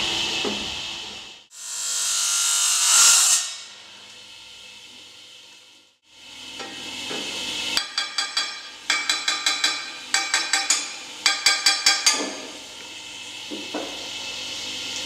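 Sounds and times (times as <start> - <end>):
tile saw cutting tile: 1.5 - 3.8.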